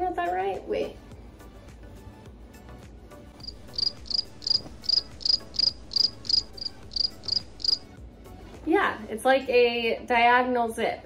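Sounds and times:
cricket chirping: 0:03.4 - 0:07.8.

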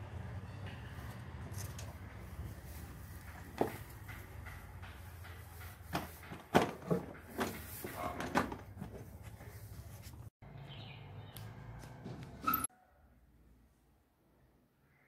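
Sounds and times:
objects knocking and thudding: 0:03.1 - 0:09.6.

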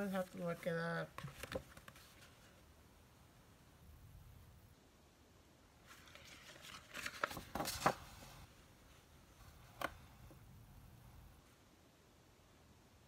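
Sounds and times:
paper rustling and sliding: 0:01.2 - 0:02.6, 0:05.8 - 0:08.5
paper crackling: 0:05.9 - 0:08.4.

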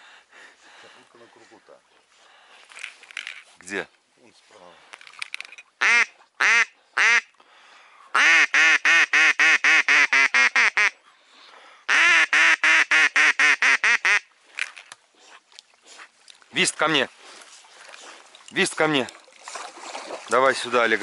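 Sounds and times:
duck quacking loudly: 0:05.8 - 0:07.3, 0:08.1 - 0:10.9, 0:11.9 - 0:14.3.

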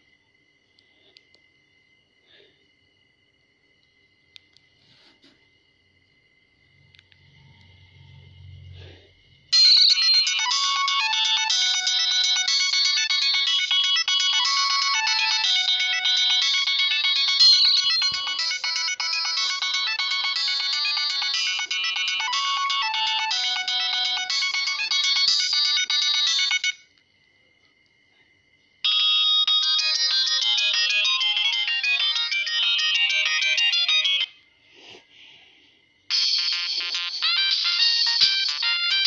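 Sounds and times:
polyphonic phone ringtones: 0:09.5 - 0:26.8, 0:28.8 - 0:34.4, 0:36.1 - 0:39.0.

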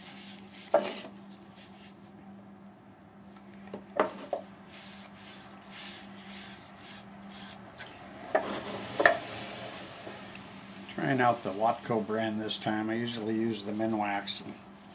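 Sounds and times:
steady low hum: 0:00.0 - 0:14.9
cloth rubbing wood: 0:04.1 - 0:07.6.

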